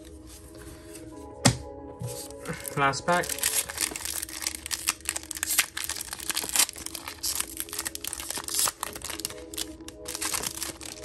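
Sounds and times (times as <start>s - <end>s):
foil wrapper tearing and crinkling: 2.4s - 11.0s.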